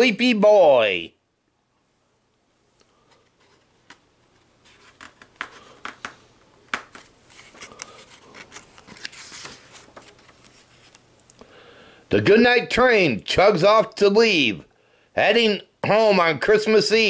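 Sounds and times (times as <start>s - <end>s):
book pages rustling: 3.1s - 11.1s.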